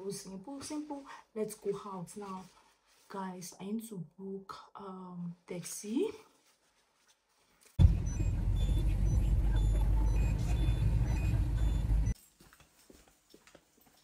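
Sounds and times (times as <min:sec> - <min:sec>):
car cabin rumble: 0:07.8 - 0:12.2
faint short high beeps: 0:07.9 - 0:12.2.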